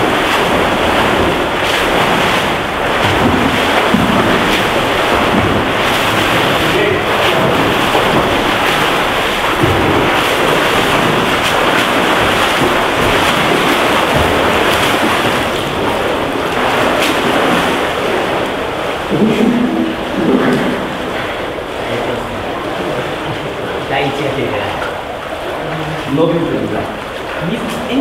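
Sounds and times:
swimmers splashing: 0.0 - 28.0.

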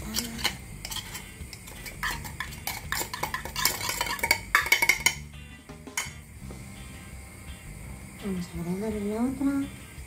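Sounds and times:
utensil clinking and scraping tin: 0.0 - 5.3.

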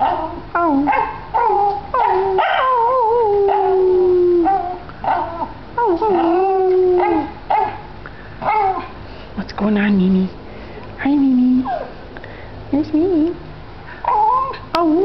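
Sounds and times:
dog howling: 0.0 - 9.0, 14.0 - 15.0
small dog yipping and whining: 11.6 - 12.0, 14.0 - 15.0.

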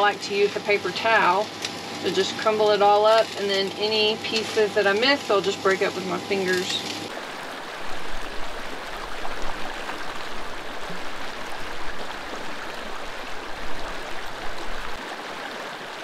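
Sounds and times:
water rushing over rocks: 7.1 - 16.0.

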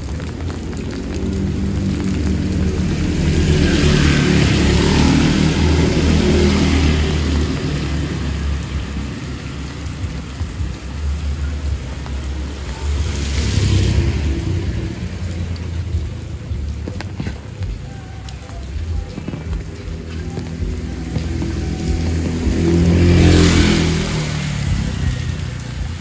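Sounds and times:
heavy rain: 0.0 - 26.0
tyres hissing through water: 0.0 - 26.0.

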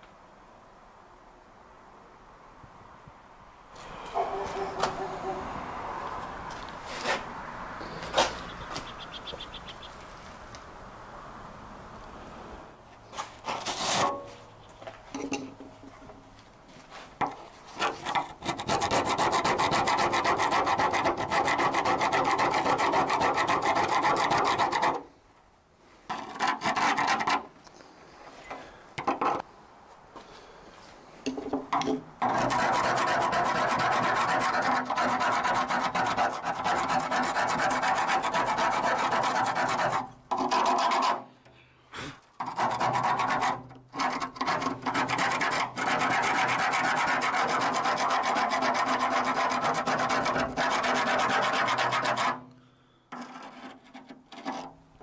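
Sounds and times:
scraper blade scraping rusty steel: 13.2 - 14.3, 17.7 - 25.1, 26.1 - 27.5, 32.2 - 41.4, 42.4 - 52.5, 53.1 - 54.8.

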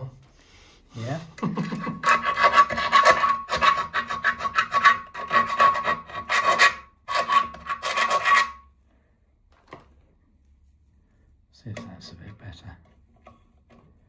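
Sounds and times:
file rasping in metal hole: 1.6 - 8.7.

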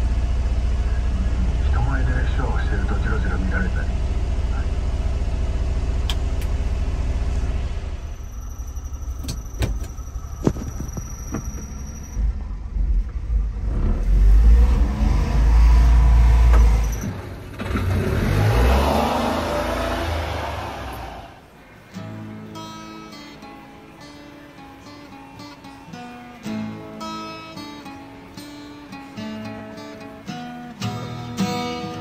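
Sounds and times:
truck engine idling: 0.0 - 13.8.

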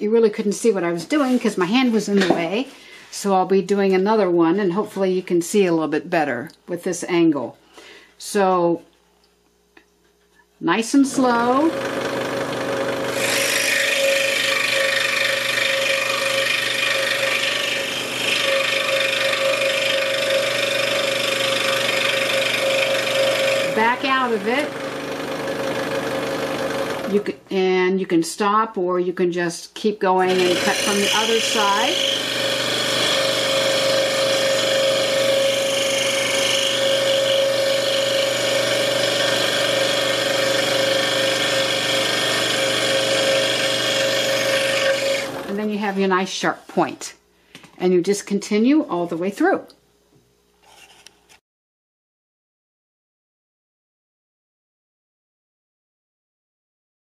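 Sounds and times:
scroll saw motor hum: 11.2 - 27.2, 30.2 - 45.6
saw blade rasping through wood: 11.7 - 27.2, 30.2 - 45.7.

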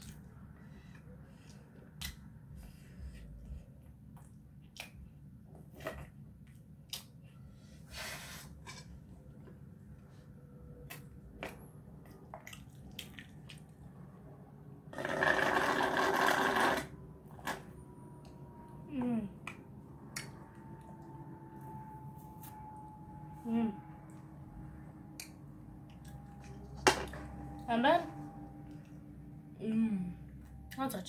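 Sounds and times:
slurping through a straw: 15.0 - 16.9.

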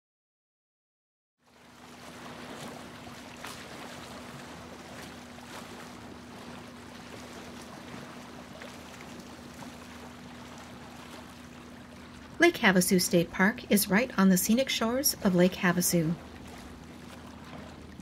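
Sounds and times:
small waves lapping on shore: 1.4 - 18.0
steady low hum: 1.6 - 18.0.

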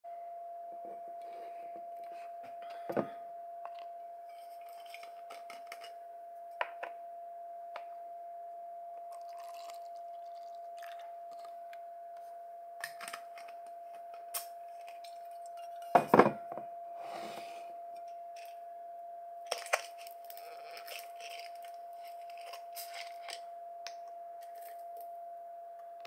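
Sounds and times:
faint high-pitched hum: 0.1 - 26.0
liquid trickling into plastic cup: 9.1 - 11.6.

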